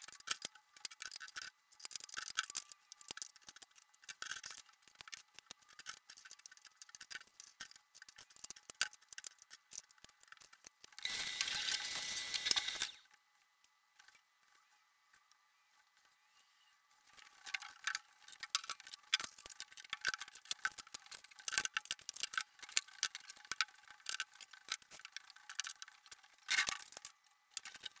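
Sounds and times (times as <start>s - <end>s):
vacuum cleaner whining: 11.0s - 13.0s.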